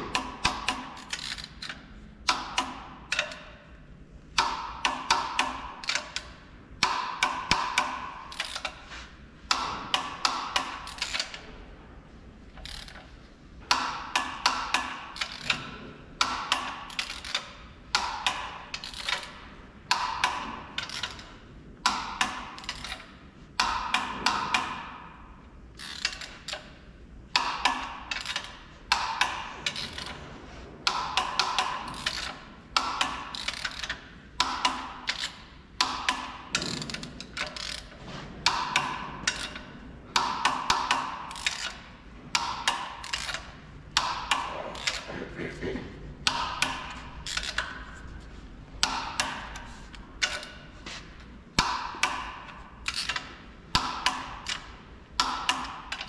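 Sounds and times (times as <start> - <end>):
torque wrench ratchet clicking: 0.2 - 3.4, 7.5 - 8.8, 16.2 - 17.5, 18.2 - 19.4, 22.2 - 23.1, 25.8 - 26.7, 27.7 - 28.5, 31.0 - 38.0, 38.8 - 39.6, 40.5 - 41.8, 42.4 - 45.1, 46.2 - 47.7, 52.8 - 53.3.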